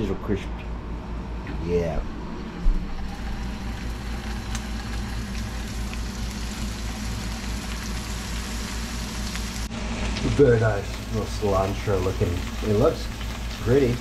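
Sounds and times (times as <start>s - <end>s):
fish sizzling in a frying pan: 3.1s - 14.0s.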